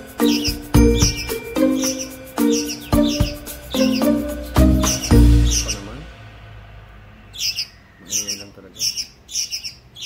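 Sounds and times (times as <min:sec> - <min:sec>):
background music: 0:00.0 - 0:07.8
high chirping sounds: 0:00.0 - 0:10.0.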